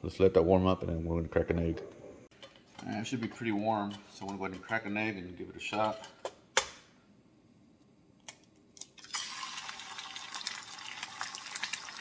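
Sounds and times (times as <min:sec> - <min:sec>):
egg sizzling in oil: 0:09.0 - 0:12.0.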